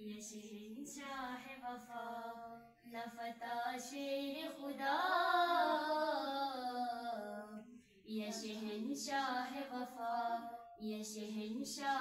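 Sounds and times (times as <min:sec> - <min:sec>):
girl singing into a microphone: 0:00.0 - 0:12.0.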